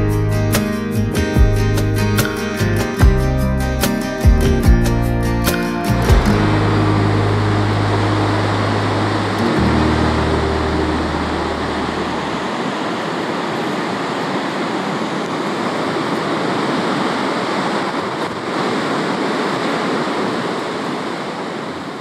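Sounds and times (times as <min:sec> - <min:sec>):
low background music tones: 0:00.0 - 0:12.5
ocean waves washing: 0:00.0 - 0:22.0.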